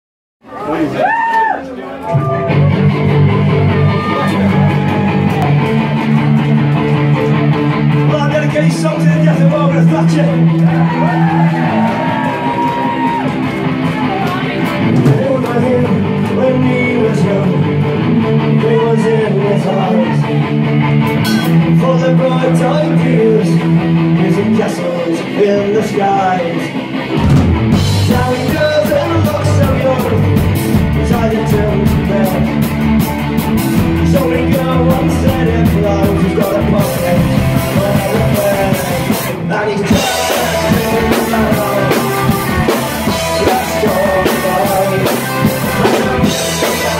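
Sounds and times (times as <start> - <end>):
live folk-punk band playing: 2.0 - 46.9
person singing: 13.8 - 20.6, 21.3 - 26.8, 28.0 - 32.7, 33.8 - 46.9.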